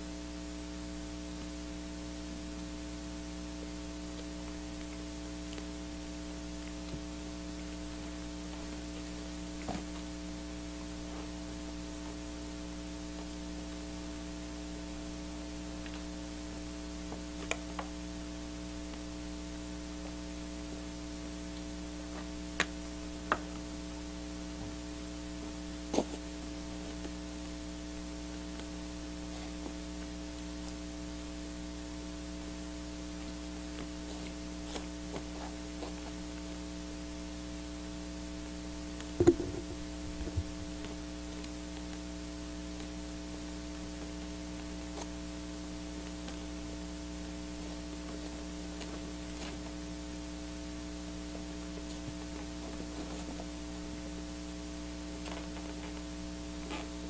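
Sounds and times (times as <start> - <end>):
electrical mains hum: 0.0 - 57.0
faint static: 0.0 - 57.0
soft knocks and clicks: 39.2 - 40.7.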